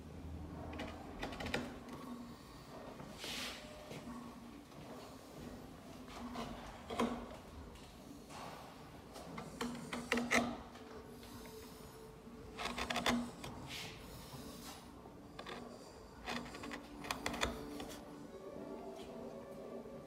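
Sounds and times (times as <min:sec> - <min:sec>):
carving tool cutting wood: 0:09.4 - 0:10.8, 0:12.4 - 0:14.5, 0:15.3 - 0:18.0.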